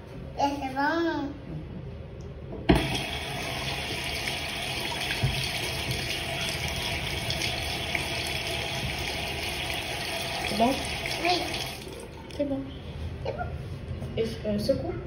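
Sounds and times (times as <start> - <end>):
water tap turned on: 2.7 - 12.4
water running into sink: 2.7 - 12.5.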